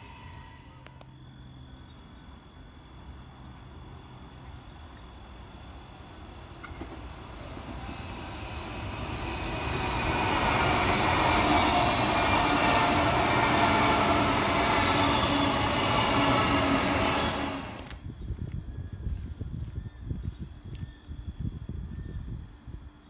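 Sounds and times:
train passing: 0.0 - 1.2, 4.0 - 18.0.

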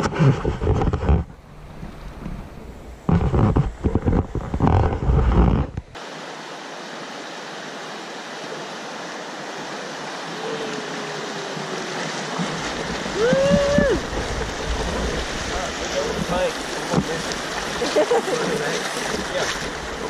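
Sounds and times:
low rumbling on microphone: 0.0 - 6.0, 12.4 - 20.0
river water rushing over riffle: 5.9 - 20.0.

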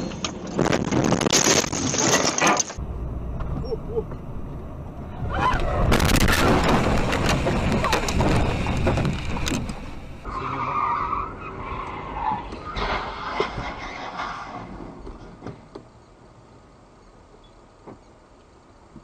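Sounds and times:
tyres skidding: 0.0 - 16.0
car scraping along asphalt: 5.1 - 16.0
car crash impacts and crunching: 5.6 - 9.9.

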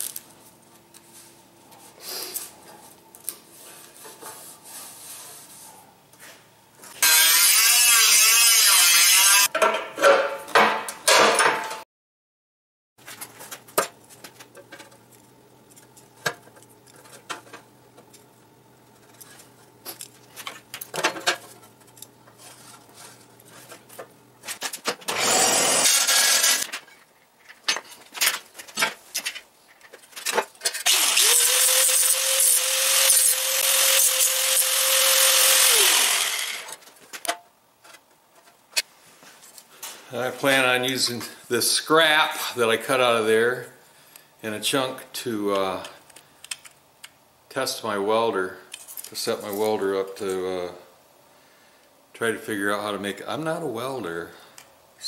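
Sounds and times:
angle grinder grinding metal: 7.0 - 9.5, 25.1 - 26.7, 30.8 - 36.8.

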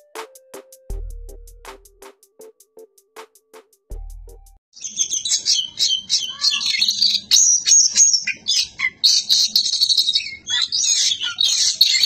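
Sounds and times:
bird singing chirps and whistles: 4.8 - 12.0.

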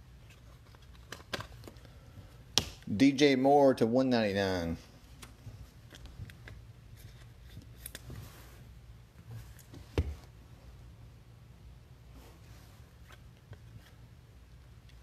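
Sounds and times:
low steady hum: 0.0 - 15.0
trading cards clicking and rustling: 0.4 - 1.9.

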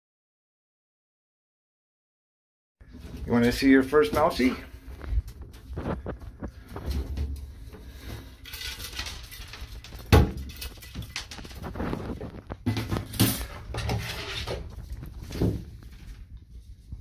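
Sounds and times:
wire trap clattering against bathtub: 8.3 - 11.7, 12.6 - 14.7.

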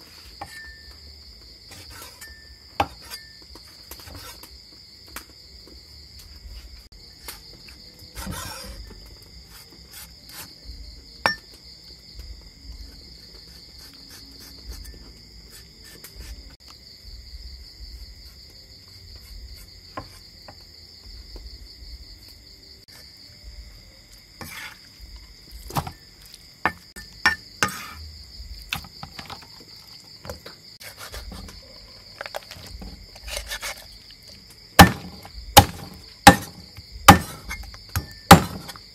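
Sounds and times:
crickets chirping: 0.0 - 38.9
cleaver knocking on chopping block: 34.8 - 38.7.

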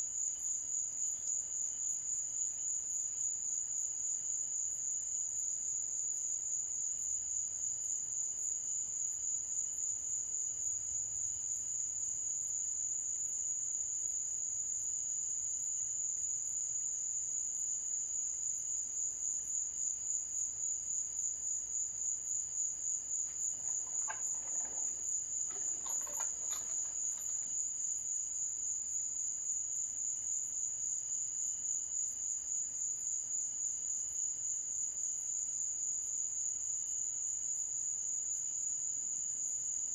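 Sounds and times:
crickets trilling: 22.6 - 27.8.

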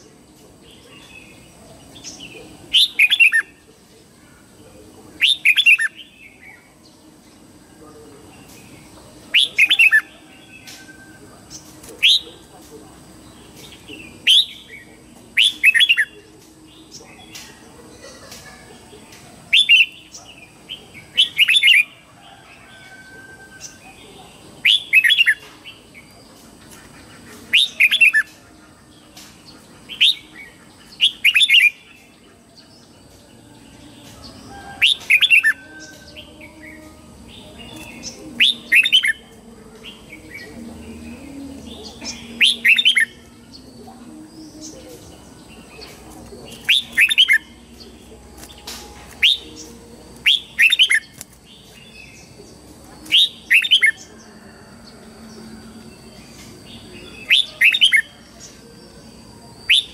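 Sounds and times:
bird singing sweeping notes: 13.1 - 18.3, 24.6 - 59.9.

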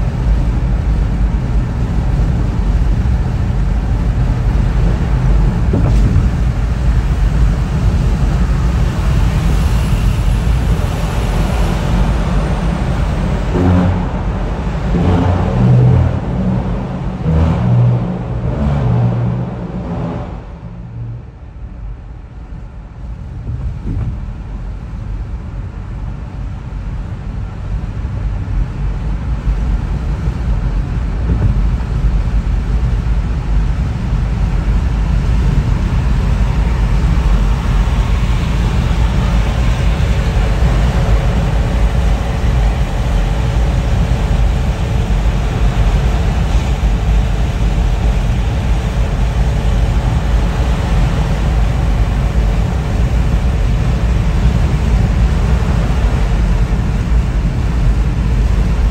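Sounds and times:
tyres rumbling on road: 0.0 - 58.9
car engine running: 0.1 - 28.2.

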